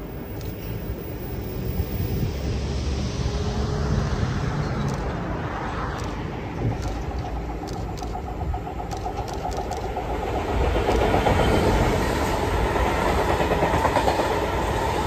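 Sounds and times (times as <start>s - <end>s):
diesel locomotive rumble: 0.0s - 15.0s
road traffic: 0.0s - 15.0s.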